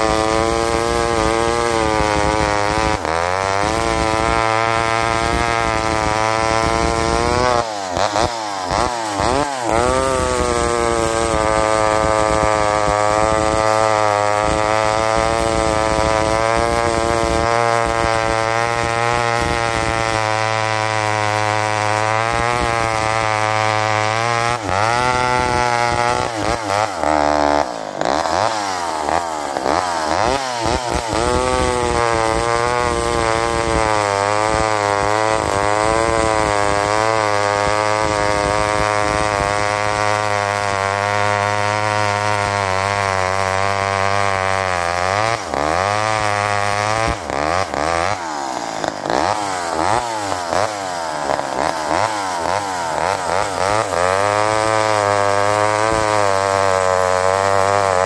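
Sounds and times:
chainsaw cutting log: 0.0s - 58.0s.

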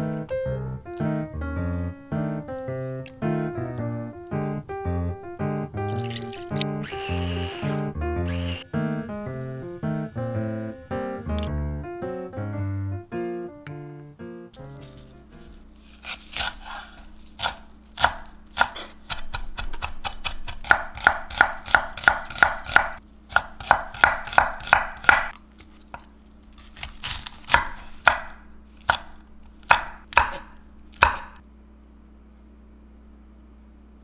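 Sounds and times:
knife chopping on cutting board: 16.0s - 25.3s, 26.8s - 31.4s.

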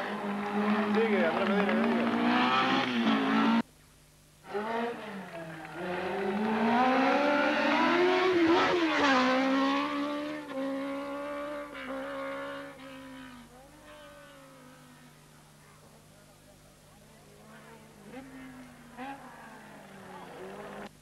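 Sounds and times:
racing car engine passing by: 0.0s - 3.6s, 4.5s - 15.2s.

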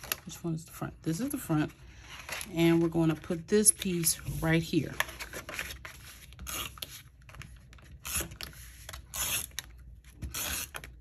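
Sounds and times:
tape dispenser zipping: 6.4s - 6.9s, 8.0s - 8.4s, 9.1s - 9.6s, 10.3s - 11.0s.

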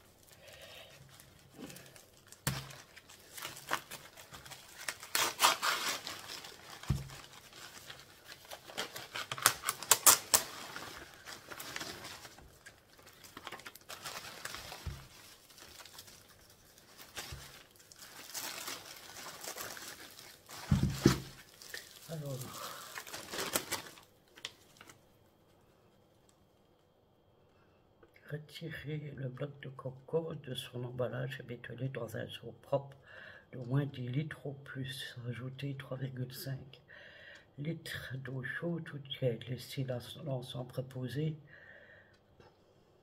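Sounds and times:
plastic packaging crinkling: 0.0s - 25.2s.

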